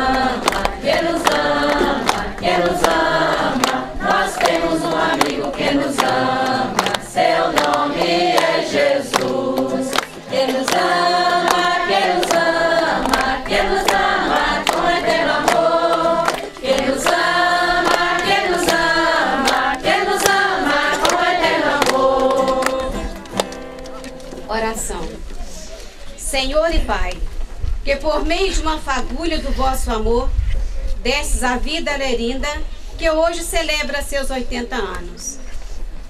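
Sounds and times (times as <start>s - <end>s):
congregation singing a hymn: 0.0s - 23.4s.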